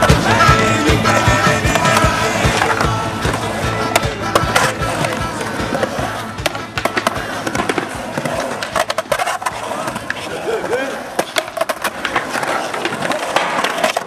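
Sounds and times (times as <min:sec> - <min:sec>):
music playing: 0:00.0 - 0:09.7
skateboard clacks and knocks: 0:00.0 - 0:14.0
skateboard wheels rumbling on concrete: 0:00.0 - 0:14.0.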